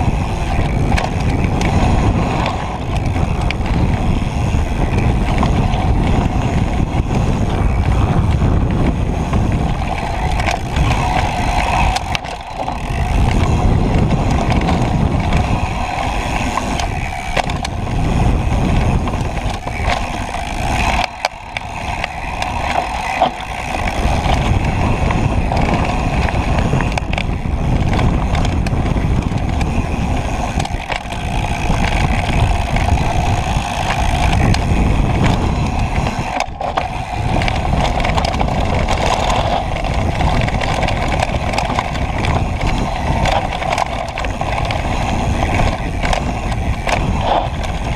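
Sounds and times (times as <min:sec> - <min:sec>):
bike knocks and rattles: 0:00.0 - 0:47.9
bike tyres rumbling on dirt: 0:00.0 - 0:47.9
wind on microphone: 0:00.0 - 0:47.9.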